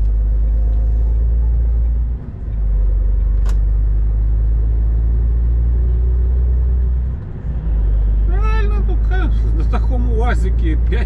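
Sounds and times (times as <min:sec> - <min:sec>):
truck engine drone inside cab: 0:00.0 - 0:11.0
sharp click: 0:03.2 - 0:03.7.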